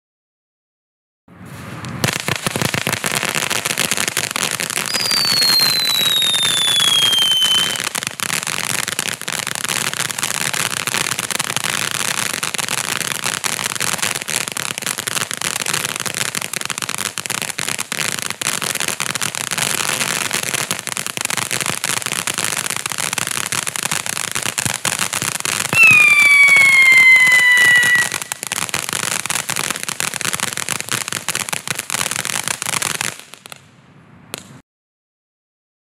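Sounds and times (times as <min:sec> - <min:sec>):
firework falling whistles: 0:01.4 - 0:08.9, 0:25.5 - 0:29.8
firework fountain crackling hiss: 0:01.5 - 0:33.6.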